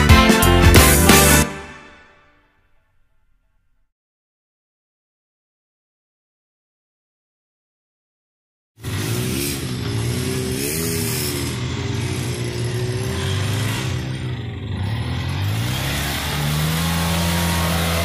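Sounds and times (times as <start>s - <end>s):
off-road vehicle engine running: 8.8s - 18.0s.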